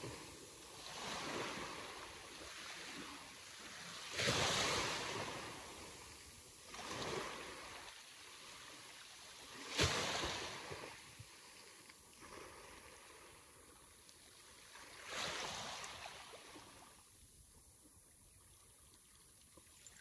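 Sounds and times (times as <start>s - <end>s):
sea waves crashing: 0.0s - 8.9s, 14.8s - 16.9s.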